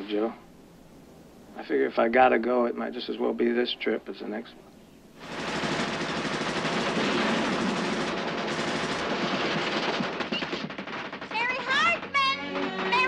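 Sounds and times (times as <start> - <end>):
machine-gun fire: 5.2 - 13.0.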